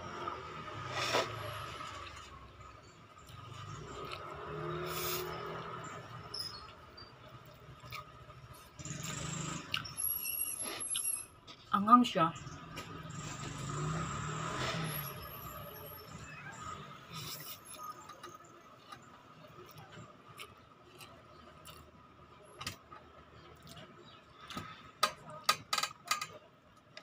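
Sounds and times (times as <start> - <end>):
quiet chewing: 7.4 - 9.9, 17.1 - 24.8.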